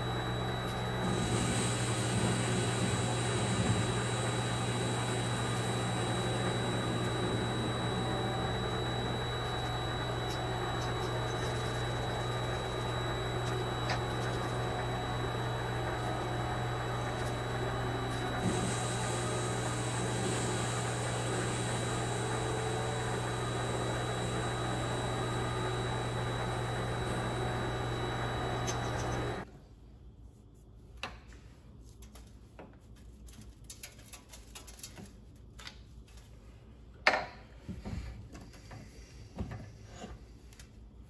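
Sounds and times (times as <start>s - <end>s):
lathe running with hum and whine: 0.0s - 29.5s.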